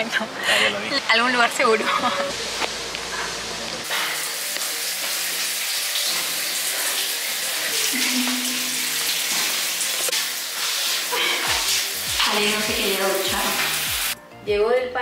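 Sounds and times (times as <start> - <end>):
shower water hissing and splashing: 2.3 - 14.2.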